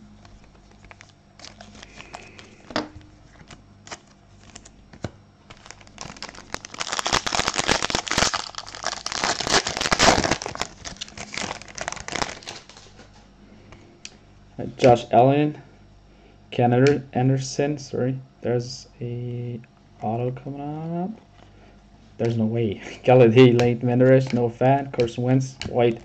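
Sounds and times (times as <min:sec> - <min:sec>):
foil wrapper tearing and crinkling: 0:00.8 - 0:02.6, 0:03.9 - 0:04.8, 0:05.5 - 0:12.9.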